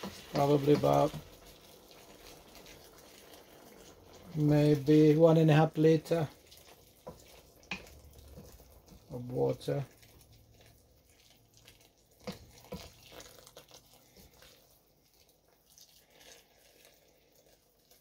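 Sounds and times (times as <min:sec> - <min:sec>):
water pouring into pan: 0:00.0 - 0:18.0
spoon knocking against pan: 0:07.0 - 0:08.6.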